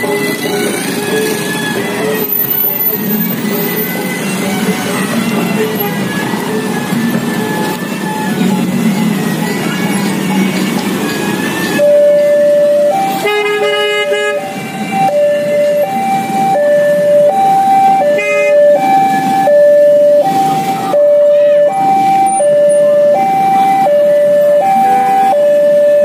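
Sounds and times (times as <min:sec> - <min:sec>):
two-tone level crossing alarm: 0:11.7 - 0:26.0.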